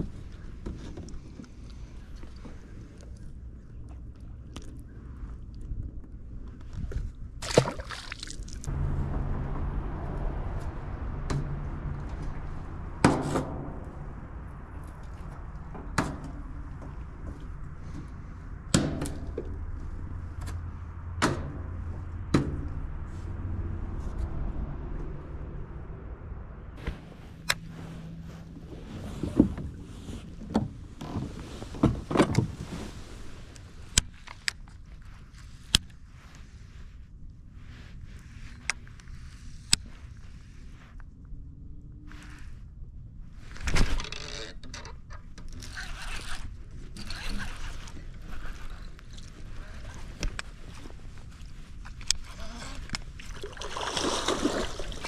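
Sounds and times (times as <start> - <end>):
steady low hum: 1.4 - 31.8.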